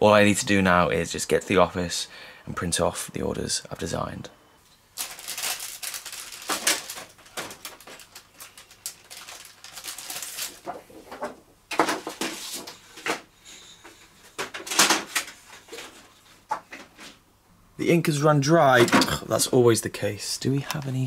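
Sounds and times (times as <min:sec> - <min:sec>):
paper rustling and crackling: 0:05.0 - 0:13.2.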